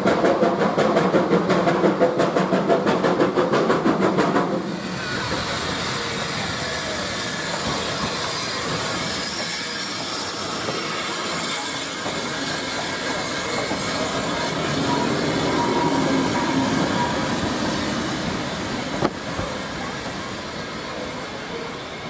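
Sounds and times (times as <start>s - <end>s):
steam train running: 0.0s - 22.0s
faint high squeal: 4.8s - 17.9s, 19.8s - 22.0s.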